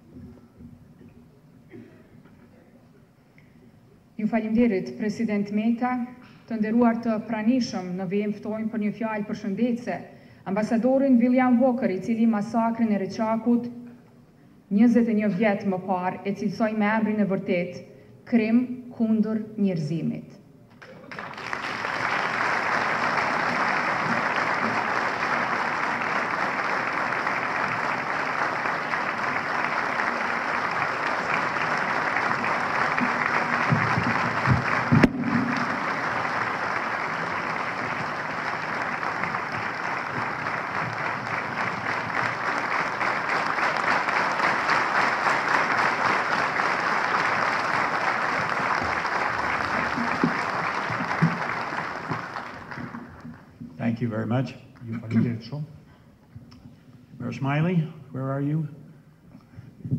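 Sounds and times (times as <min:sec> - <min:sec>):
large audience applauding: 0:20.7 - 0:53.5.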